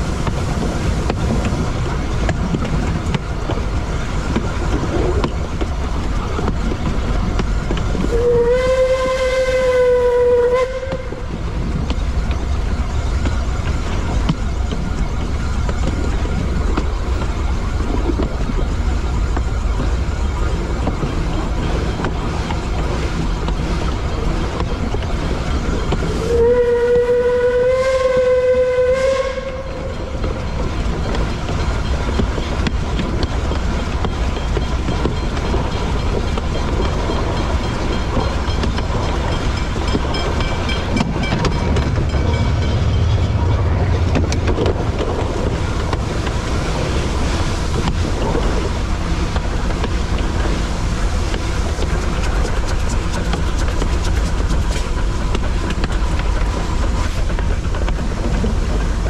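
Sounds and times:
train rumbling and clattering: 0.0s - 59.0s
steam whistle blast: 8.1s - 11.2s, 26.2s - 29.9s.

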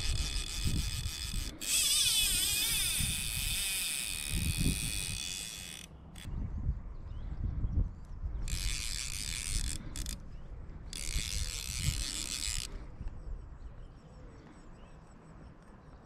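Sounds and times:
fishing reel clicks: 0.0s - 6.3s, 8.4s - 10.2s, 10.9s - 12.8s
fishing reel drag buzzing: 0.0s - 6.3s, 8.4s - 10.2s, 10.8s - 12.9s.

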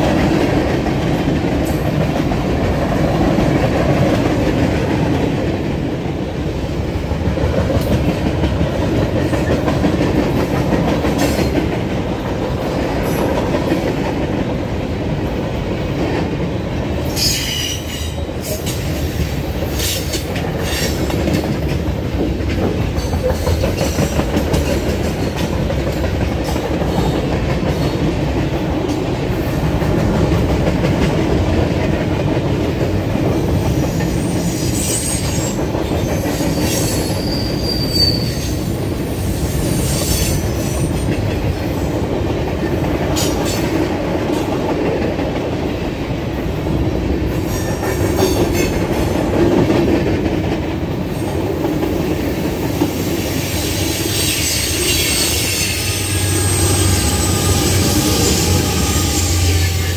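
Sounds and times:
train wheels rumbling on rails: 0.0s - 59.9s
high wheel squeals: 36.5s - 38.6s, 53.7s - 59.9s.

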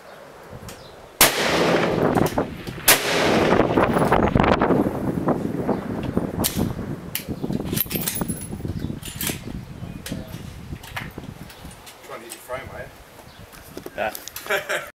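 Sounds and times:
distant rifle shots: 1.2s - 4.1s
rifle shot echo: 1.2s - 4.2s.

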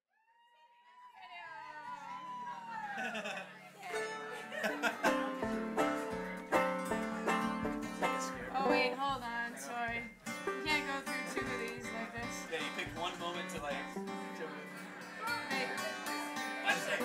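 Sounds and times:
plucked string band music: 3.9s - 9.2s, 10.0s - 17.0s.

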